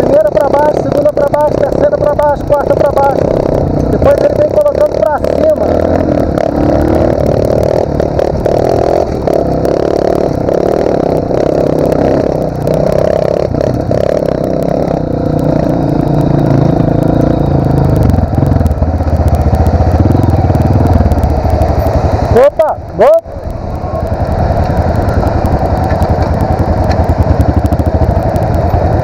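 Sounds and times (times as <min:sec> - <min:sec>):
dirt bike engines running: 0:00.0 - 0:29.0
rattling on rough dirt track: 0:00.0 - 0:29.0.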